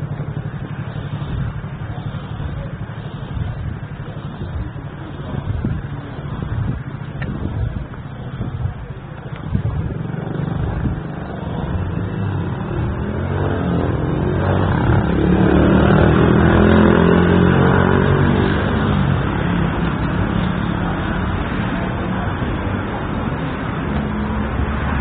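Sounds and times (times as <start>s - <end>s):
vehicle engine passing by: 9.7s - 25.0s.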